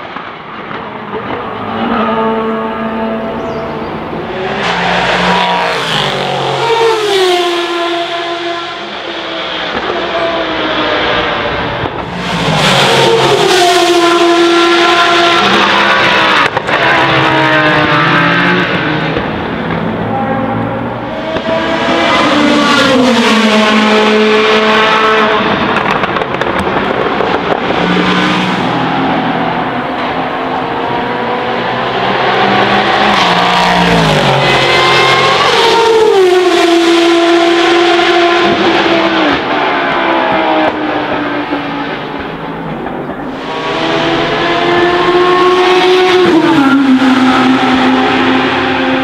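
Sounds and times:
racing car engines revving: 0:00.0 - 0:49.0.

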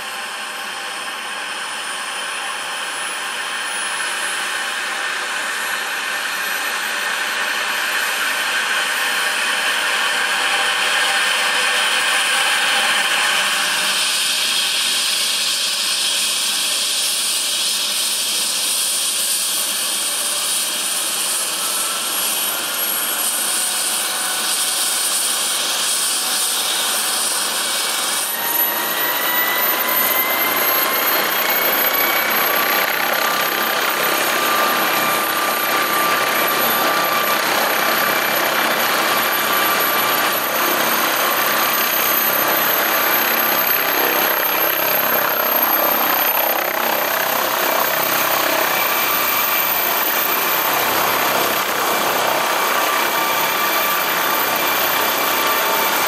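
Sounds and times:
helicopter turbine whine: 0:00.0 - 0:56.0
rising engine whine: 0:26.2 - 0:56.0.

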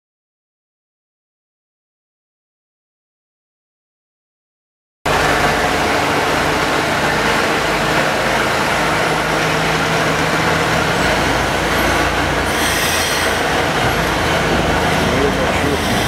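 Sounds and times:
locomotive rumbling along track: 0:05.1 - 0:16.0.

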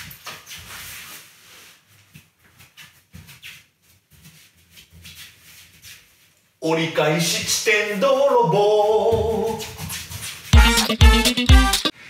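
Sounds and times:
footsteps on wooden floor: 0:08.9 - 0:11.2.

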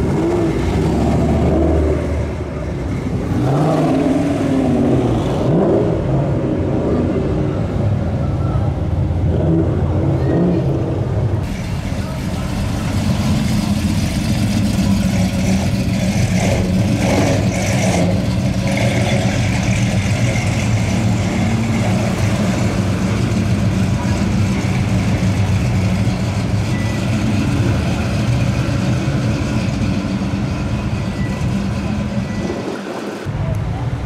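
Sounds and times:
car exhaust rumble: 0:08.0 - 0:34.0.

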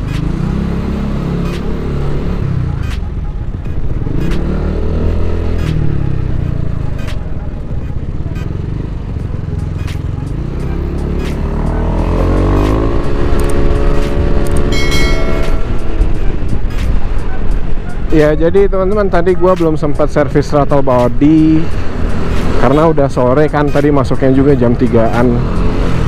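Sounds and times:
scooter engine accelerating: 0:00.0 - 0:17.7.

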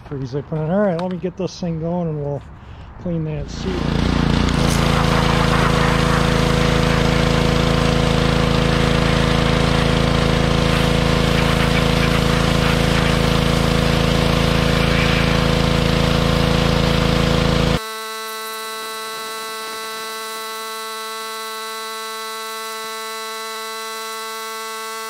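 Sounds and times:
small engine running: 0:03.4 - 0:25.0
water jet spraying metal: 0:03.5 - 0:17.8.

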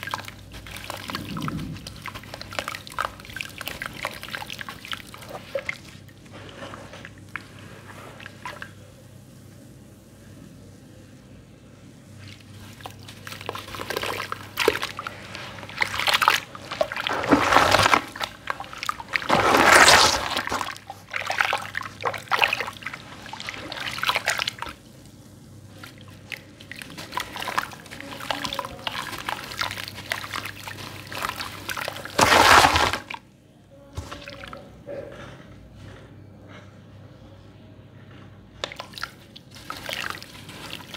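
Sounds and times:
hands sloshing water in metal tub: 0:00.0 - 0:08.7, 0:12.3 - 0:24.8, 0:25.8 - 0:33.2, 0:38.7 - 0:40.9.

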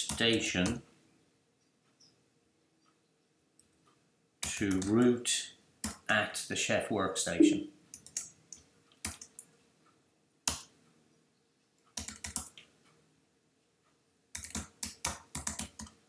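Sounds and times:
computer keyboard typing: 0:12.0 - 0:12.6, 0:14.4 - 0:16.0.

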